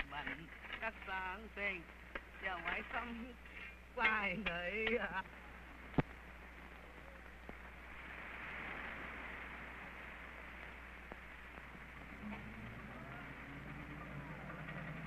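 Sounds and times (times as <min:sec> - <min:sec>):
film soundtrack hiss and hum: 0:00.0 - 0:15.0
faint clicks: 0:05.9 - 0:07.7.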